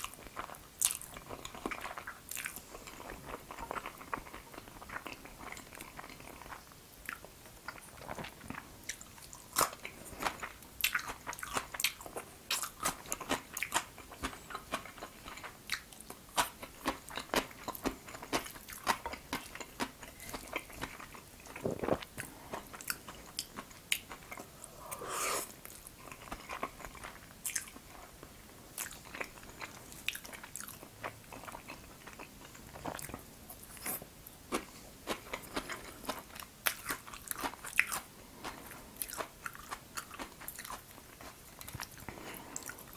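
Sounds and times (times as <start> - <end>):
wet chewing of noodles: 0.0 - 42.9.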